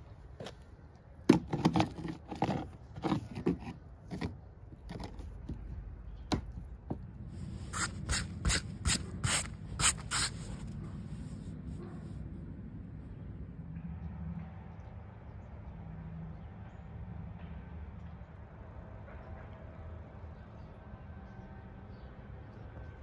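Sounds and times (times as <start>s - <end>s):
hand scraping rough wood: 7.4s - 11.4s.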